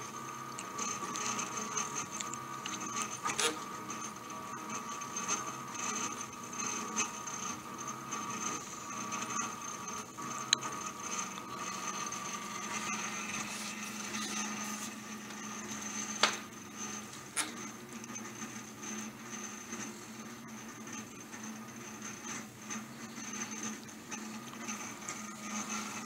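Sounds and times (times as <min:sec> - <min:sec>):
stepper motors whining: 0:00.0 - 0:20.2.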